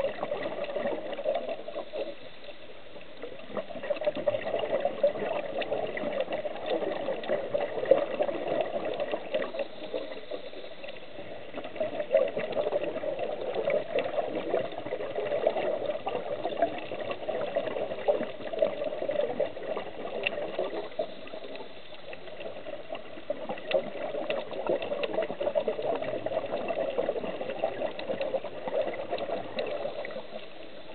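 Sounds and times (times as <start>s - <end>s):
underwater bubbling: 0.0s - 30.9s.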